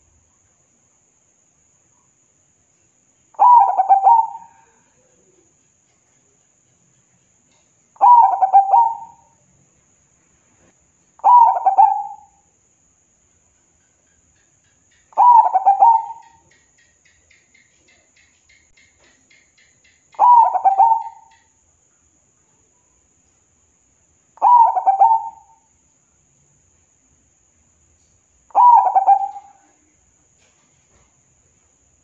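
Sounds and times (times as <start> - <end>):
dove cooing: 3.4 - 4.9, 8.0 - 9.3, 11.2 - 12.4, 15.2 - 16.5, 20.2 - 21.4, 24.4 - 25.6, 28.5 - 29.8.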